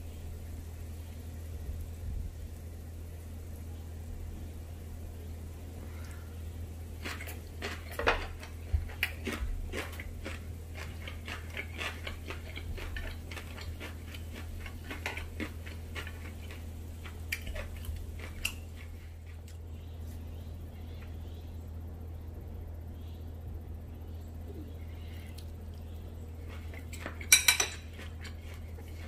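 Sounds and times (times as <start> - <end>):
steady low hum: 0.0 - 29.0
person chewing: 6.9 - 19.6, 25.2 - 29.0.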